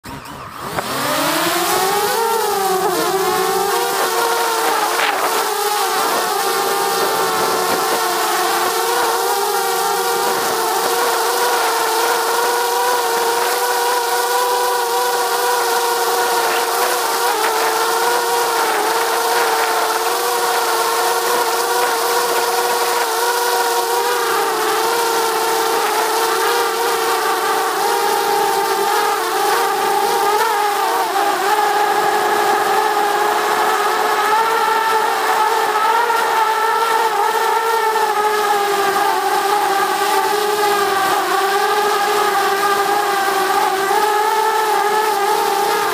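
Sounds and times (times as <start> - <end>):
drone propellers buzzing: 0.0 - 45.9.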